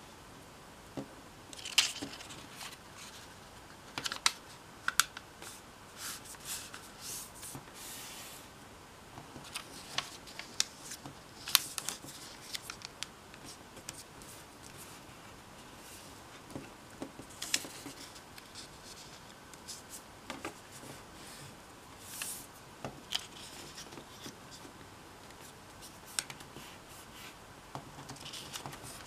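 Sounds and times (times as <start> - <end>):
paper crackling and tapping: 9.2 - 14.8, 16.5 - 20.9, 25.3 - 26.6, 27.7 - 29.0.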